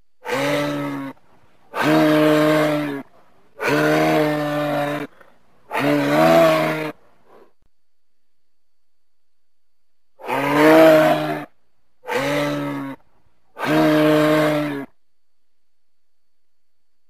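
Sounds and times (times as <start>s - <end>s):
moose calling: 10.2s - 13.0s.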